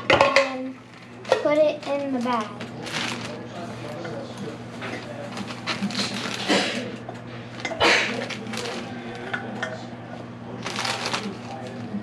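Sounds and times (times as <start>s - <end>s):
plastic bag crinkling: 0.9s - 4.0s, 4.8s - 9.3s, 10.5s - 12.0s.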